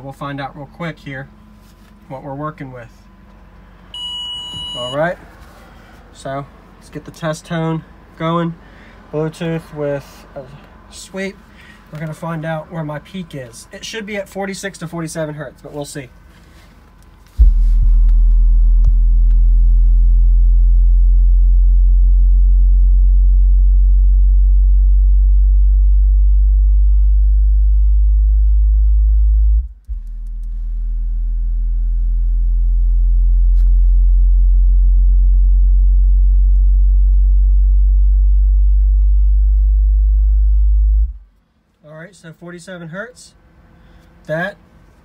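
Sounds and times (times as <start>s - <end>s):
subwoofer low tone sweep: 17.3s - 41.3s.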